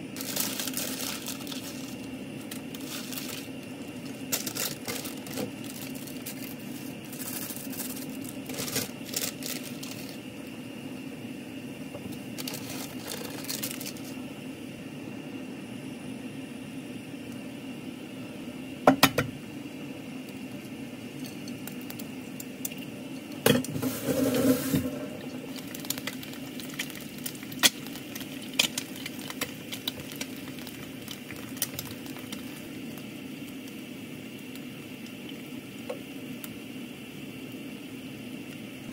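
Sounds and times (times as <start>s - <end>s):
egg sizzling in hot oil: 0.0s - 11.2s, 19.4s - 38.9s
steady low hum: 0.0s - 38.9s.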